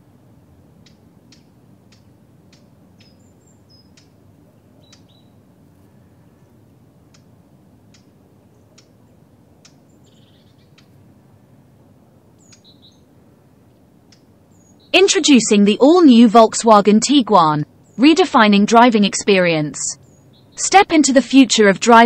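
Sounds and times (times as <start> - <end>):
high bird chirps: 3.0 - 4.1, 4.8 - 5.4, 9.9 - 10.9, 12.4 - 13.1, 20.0 - 20.6
sharp clicks: 14.1 - 14.3.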